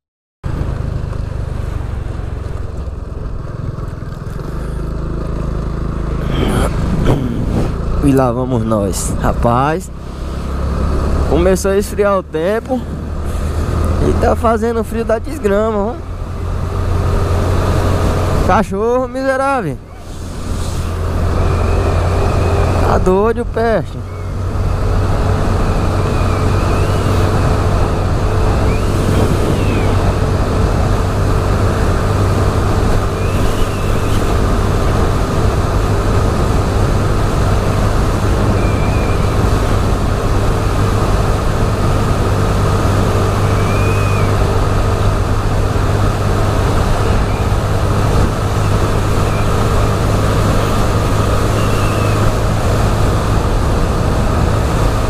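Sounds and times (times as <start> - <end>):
motorbike engine running: 0.5 - 11.6
wind noise on microphone: 6.5 - 7.9, 24.4 - 55.0.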